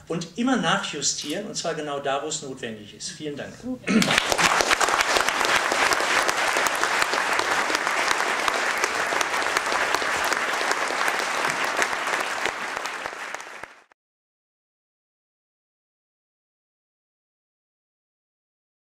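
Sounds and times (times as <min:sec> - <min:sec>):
audience applauding: 0:04.0 - 0:14.0.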